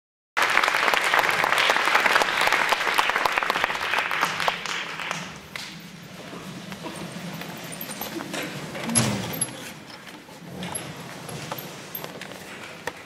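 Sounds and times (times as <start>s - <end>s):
audience applauding: 0.4s - 5.8s.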